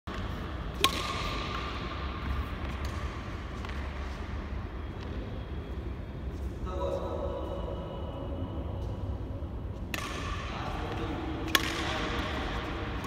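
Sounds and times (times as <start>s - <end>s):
racket striking shuttlecock: 0.1s - 3.8s, 9.9s - 13.0s
steady low hum: 0.1s - 13.0s.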